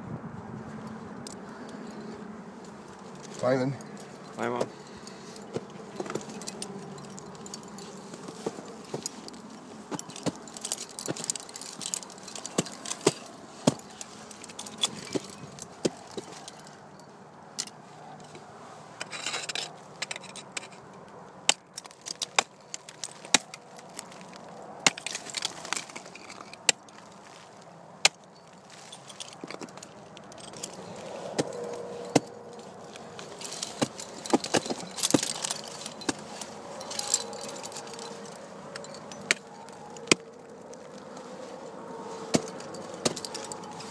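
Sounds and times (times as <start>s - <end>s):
metallic clinking of carabiners: 0.8s - 43.9s
ice tools striking ice: 21.5s - 26.8s.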